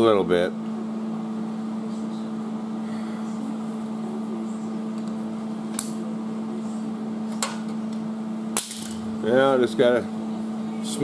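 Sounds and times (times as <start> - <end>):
machine hum with fan drone: 0.0 - 11.0.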